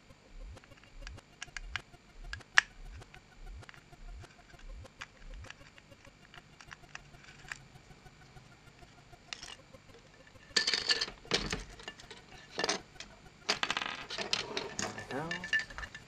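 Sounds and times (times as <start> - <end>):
plastic parts clicking and rattling: 0.6 - 7.6, 8.8 - 16.0.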